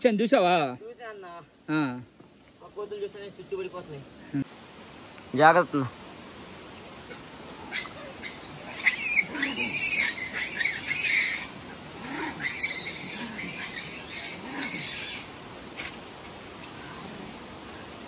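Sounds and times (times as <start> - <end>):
monkeys screeching: 7.1 - 15.3.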